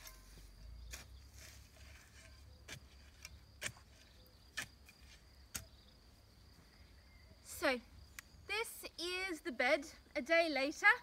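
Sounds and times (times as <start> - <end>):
garden tools chopping soil: 0.0 - 6.0.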